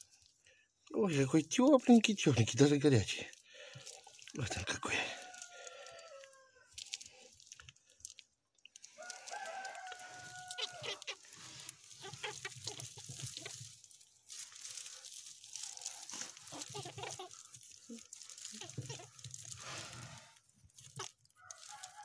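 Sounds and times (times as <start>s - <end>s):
straw rustling and crackling: 0.0s - 22.0s
rooster crowing: 4.5s - 6.7s, 9.0s - 11.2s, 21.4s - 22.0s.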